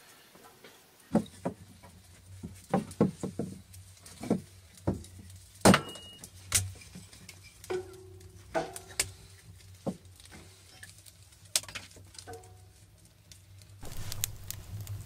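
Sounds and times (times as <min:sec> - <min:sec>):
low steady hum: 0:03.6 - 0:15.0.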